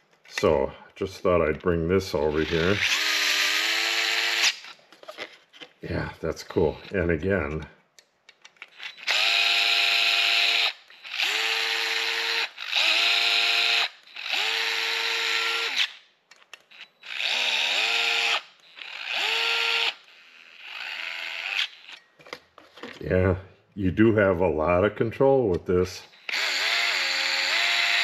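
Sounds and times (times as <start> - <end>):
cordless screwdriver motor whine: 2.3 - 5.3, 8.6 - 16.0, 16.6 - 22.0, 26.2 - 28.0.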